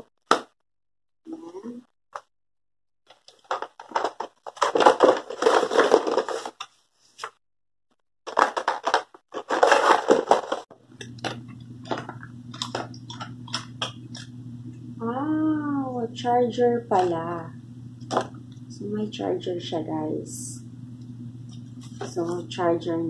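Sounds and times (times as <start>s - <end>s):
packaging crinkling and rustling: 3.1s - 6.7s, 8.3s - 14.3s
low steady hum: 10.7s - 23.0s.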